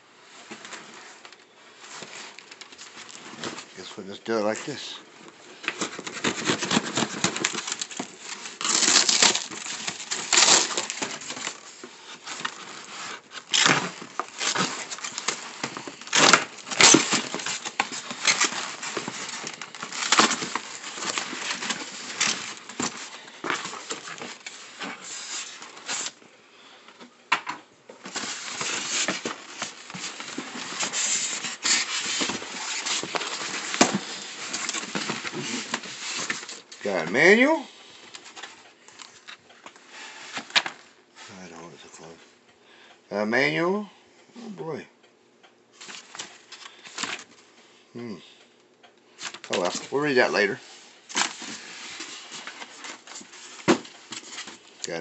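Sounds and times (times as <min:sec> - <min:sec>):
foam packing crackling: 0:00.5 - 0:26.2, 0:28.0 - 0:39.3, 0:49.2 - 0:55.0
cardboard tearing: 0:05.6 - 0:26.2, 0:28.0 - 0:36.6.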